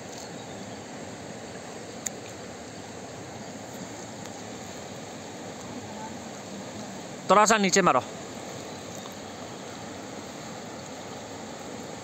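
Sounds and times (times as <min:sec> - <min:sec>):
river current rushing: 0:00.0 - 0:12.0.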